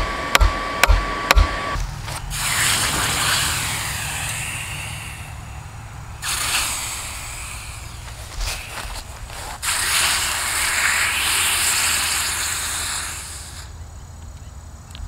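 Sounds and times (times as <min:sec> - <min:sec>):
hot metal sizzling in water: 0:02.3 - 0:05.3, 0:06.2 - 0:13.7.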